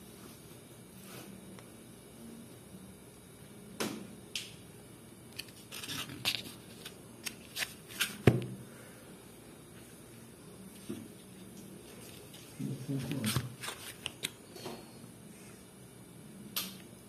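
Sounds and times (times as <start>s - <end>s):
food packaging rustles and clicks: 5.4s - 8.3s.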